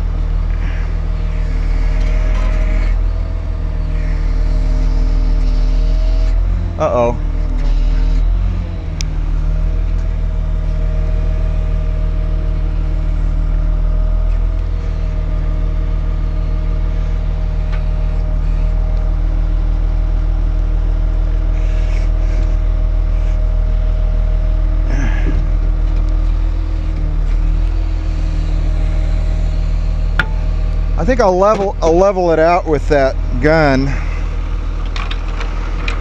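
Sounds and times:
diesel engine droning: 0:00.0 - 0:36.0
metal clanks and scrapes: 0:30.1 - 0:30.5.

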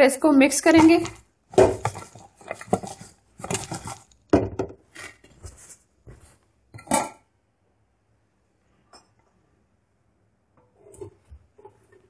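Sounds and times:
pot and lid clattering: 0:06.8 - 0:07.2.

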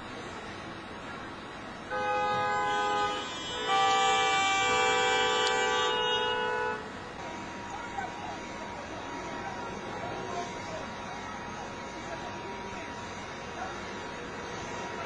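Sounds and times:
street noise: 0:00.0 - 0:15.0
vehicle horn blasts: 0:01.9 - 0:06.9.

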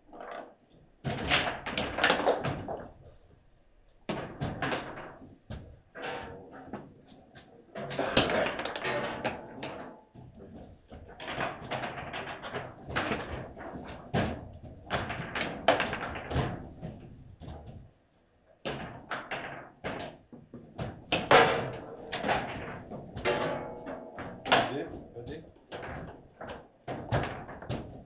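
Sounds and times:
table football ball clacks: 0:01.1 - 0:03.2, 0:11.2 - 0:17.6.

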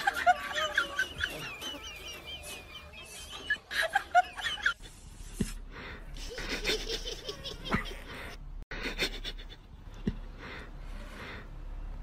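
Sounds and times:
person laughing: 0:00.0 - 0:05.0, 0:06.1 - 0:09.7.

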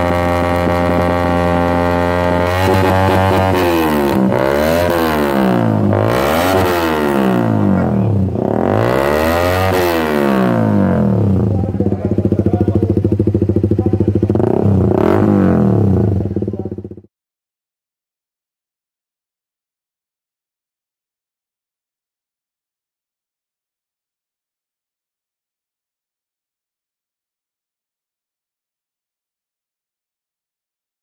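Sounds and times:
motorcycle engine revving: 0:00.0 - 0:17.1.

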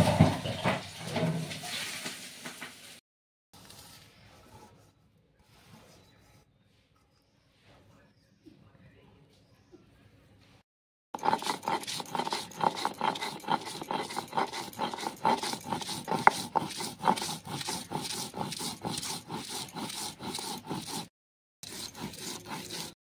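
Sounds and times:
stone roller grinding on stone: 0:11.2 - 0:23.0.

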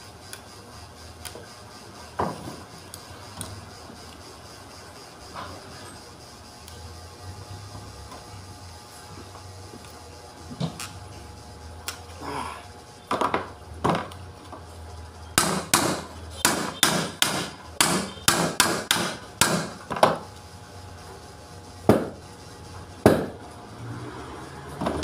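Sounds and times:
sharp blows on metal housing: 0:15.4 - 0:19.8.

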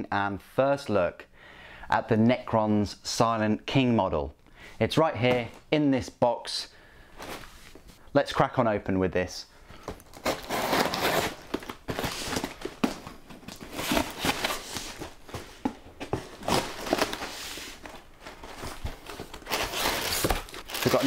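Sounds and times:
tape crackling: 0:09.8 - 0:21.0
blade scraping along packing tape: 0:10.2 - 0:11.4.

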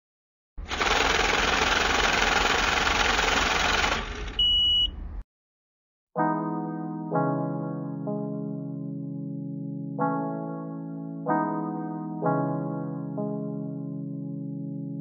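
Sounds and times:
short high beep: 0:04.4 - 0:05.0.

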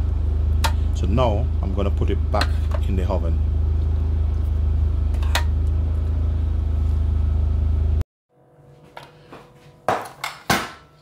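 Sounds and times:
oven fan humming: 0:00.0 - 0:08.0.

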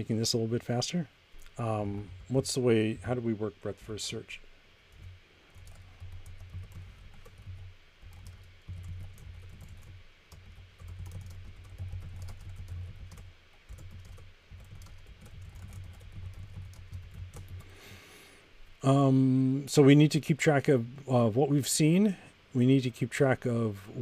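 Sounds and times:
keyboard typing clicks: 0:04.9 - 0:17.7.

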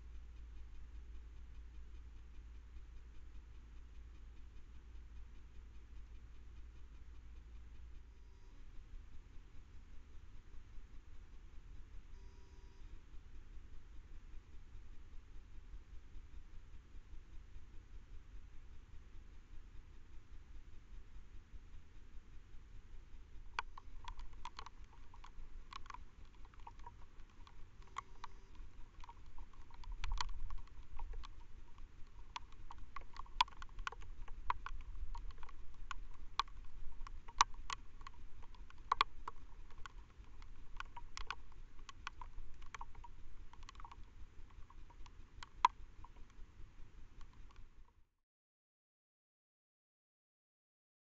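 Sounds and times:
faint hiss: 0:00.0 - 0:48.0
scattered clicks and ticks: 0:00.0 - 0:48.1.

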